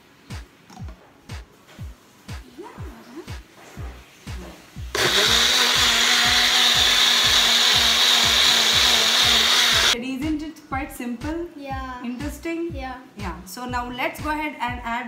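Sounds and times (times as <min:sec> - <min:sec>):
background music with beat: 0:00.0 - 0:15.0
blender running: 0:04.9 - 0:10.0.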